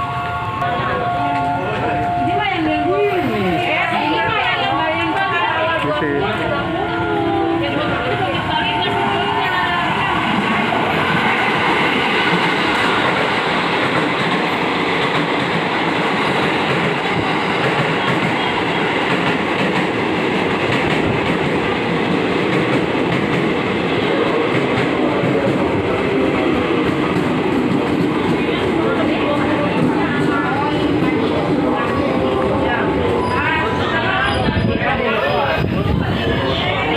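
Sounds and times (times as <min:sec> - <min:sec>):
train wheels rattling over rails: 0:07.8 - 0:36.9.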